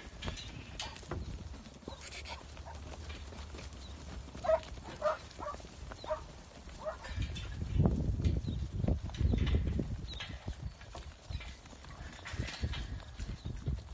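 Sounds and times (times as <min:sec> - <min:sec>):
hooves shuffling and clicking: 0:00.0 - 0:13.9
short sheep calls: 0:01.9 - 0:02.4.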